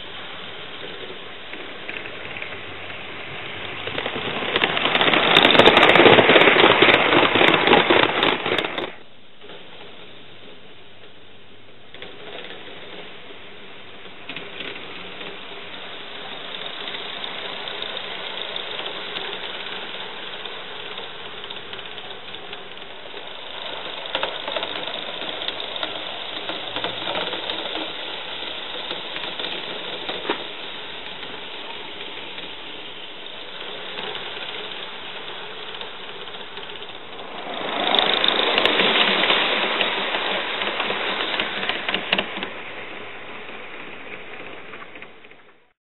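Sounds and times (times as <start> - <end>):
train wheels clicking on track: 0.0 - 45.7
steam locomotive chuffing: 12.2 - 45.7.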